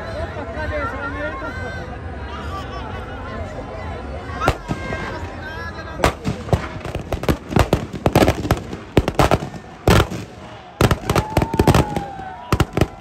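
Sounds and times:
firecrackers banging: 4.5s - 13.0s.

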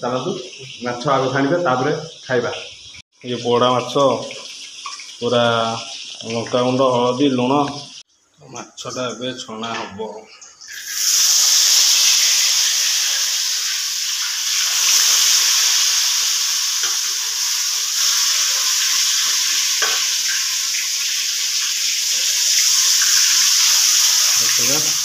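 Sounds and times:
fish sizzling in hot oil: 4.1s - 6.3s, 10.6s - 25.0s.

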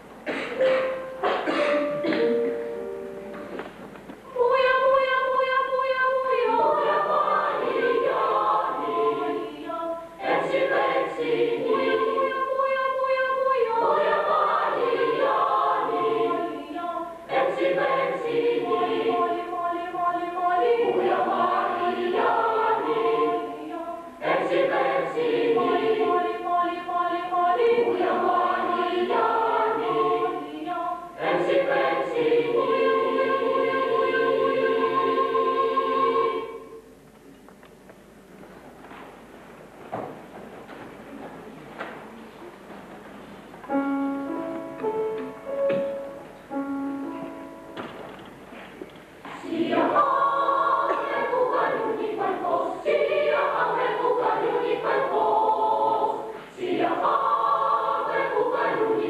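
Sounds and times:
boys' choir singing: 4.3s - 36.9s, 49.2s - 59.0s.

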